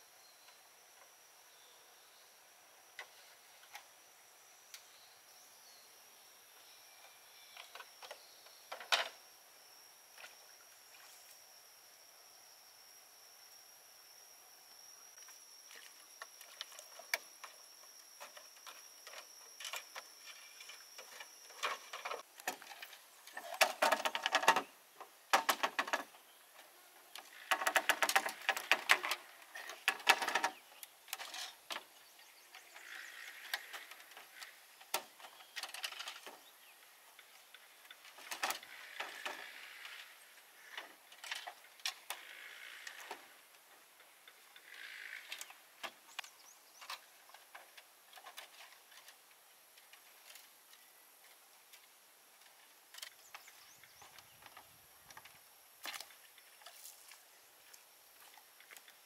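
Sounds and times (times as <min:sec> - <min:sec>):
insect whine: 0:00.0 - 0:49.3
bamboo poles creaking and clicking: 0:03.0 - 0:03.9, 0:07.0 - 0:09.2, 0:15.2 - 0:59.0.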